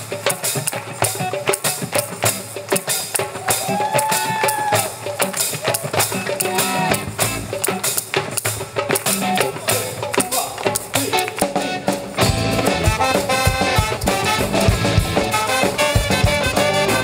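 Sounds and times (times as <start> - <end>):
hand claps: 0.1 - 12.3.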